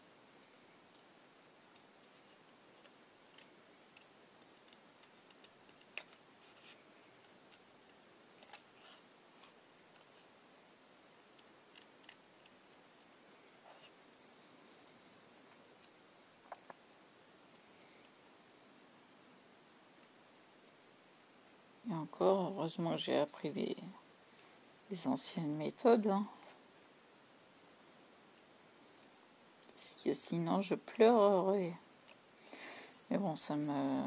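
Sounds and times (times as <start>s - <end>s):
scissors snipping paper: 11.4s - 13.9s.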